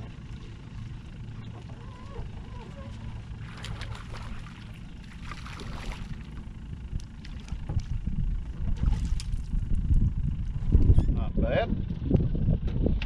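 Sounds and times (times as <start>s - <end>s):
fish splashing in water: 3.3s - 6.5s
wind buffeting microphone: 4.9s - 13.0s.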